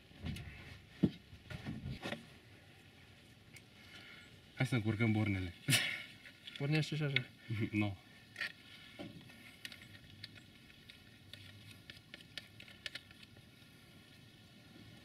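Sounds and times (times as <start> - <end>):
metallic clicks and scrapes: 9.2 - 13.4.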